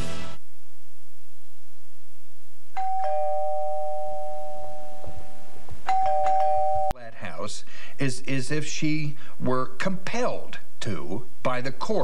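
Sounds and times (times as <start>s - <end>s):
two-tone doorbell chime: 2.8s - 7.0s.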